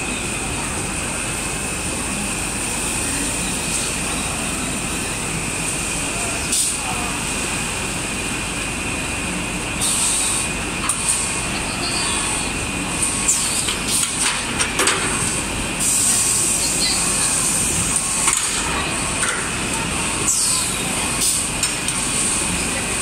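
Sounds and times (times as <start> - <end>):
high-pitched machine whines: 9.9 - 13.7.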